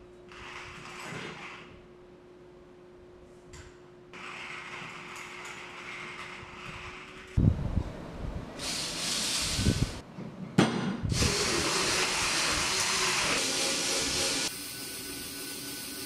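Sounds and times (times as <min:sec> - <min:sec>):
cordless drill spinning grinder: 0:11.1 - 0:14.5.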